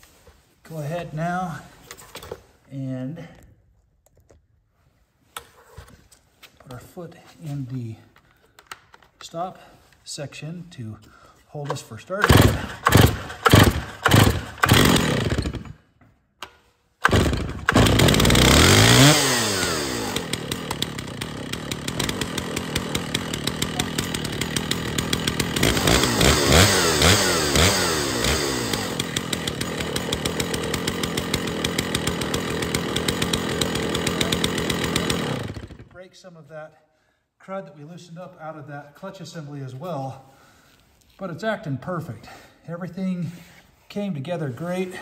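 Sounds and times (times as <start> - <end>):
starter rope pulls: 11.5 - 15.8, 17.0 - 36.0
chainsaw engine revving and idling: 12.2 - 15.8, 17.0 - 36.0.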